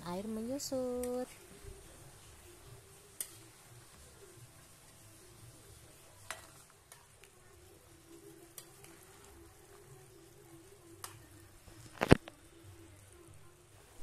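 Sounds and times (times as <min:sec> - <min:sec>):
broth simmering in a pan: 0:00.0 - 0:14.0
metal spatula clicking on pan: 0:03.2 - 0:03.4, 0:08.6 - 0:08.9.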